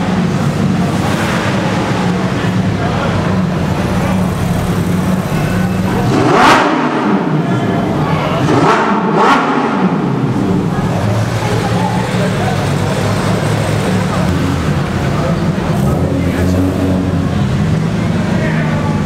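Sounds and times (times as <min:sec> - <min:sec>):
car engines running at low speed: 0:00.0 - 0:19.0
engine rev blips: 0:04.2 - 0:19.0.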